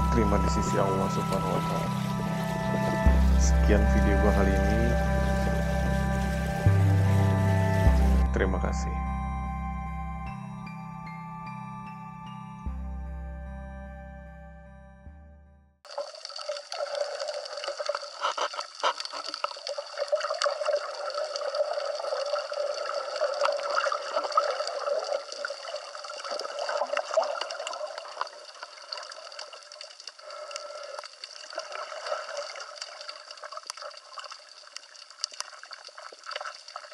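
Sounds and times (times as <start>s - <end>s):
muffled underwater wash: 0.0s - 8.7s, 15.9s - 36.9s
small clicks and crackles: 15.9s - 36.9s.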